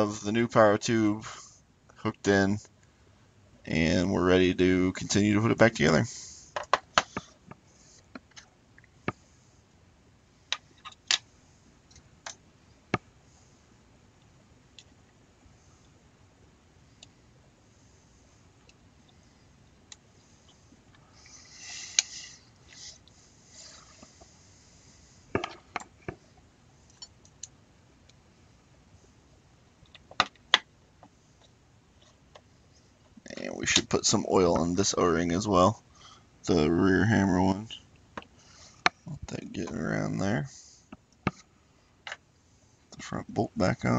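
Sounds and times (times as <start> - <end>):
small parts clicking and tapping: 25.3 - 28.2.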